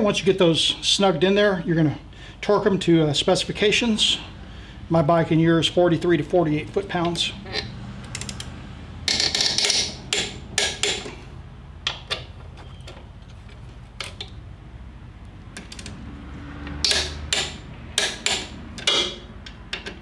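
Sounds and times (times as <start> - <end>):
torque wrench clicking: 7.5 - 8.5, 16.6 - 20.0.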